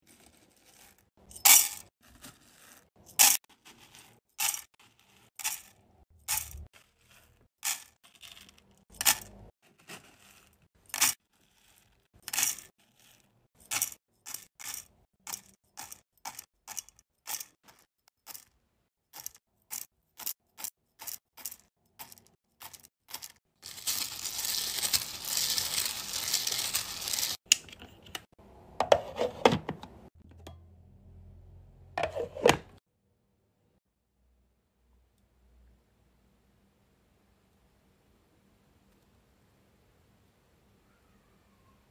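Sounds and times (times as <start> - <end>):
wax beads pouring into metal pot: 9.8 - 13.8, 22.6 - 27.4
wax beads clicking against metal scoop: 19.2 - 27.4.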